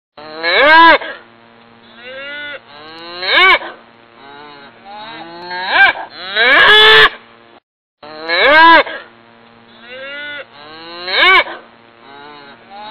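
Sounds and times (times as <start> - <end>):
cattle mooing: 1.9 - 3.6, 4.2 - 6.9, 9.7 - 12.9.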